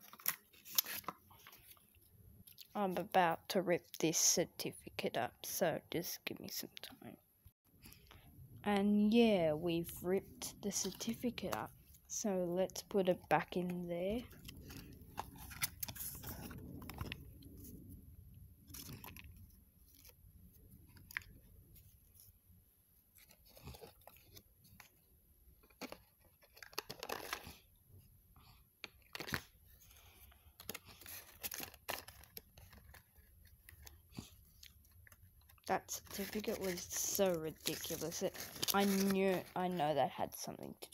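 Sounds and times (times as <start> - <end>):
paper and cardboard rustling: 13.5 - 17.7, 29.0 - 40.2.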